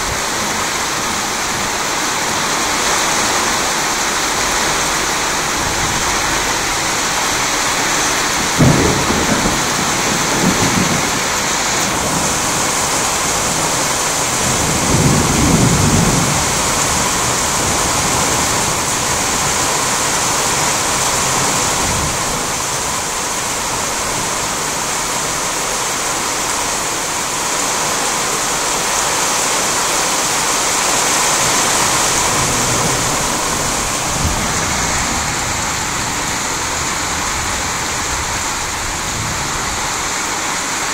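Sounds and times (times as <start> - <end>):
heavy rain falling: 0.0 - 40.9
thunder clap: 4.0 - 22.6, 31.2 - 40.3
low rumble of thunder: 4.0 - 24.8, 31.4 - 40.2.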